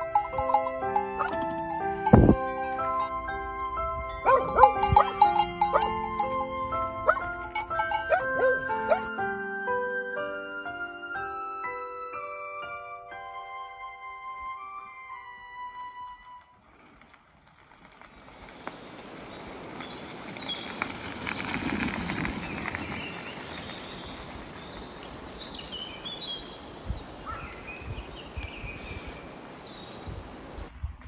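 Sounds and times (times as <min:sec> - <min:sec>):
birds chirping: 0:00.0 - 0:03.4, 0:04.0 - 0:09.1, 0:18.0 - 0:30.7
tyres crunching on gravel: 0:16.6 - 0:30.6.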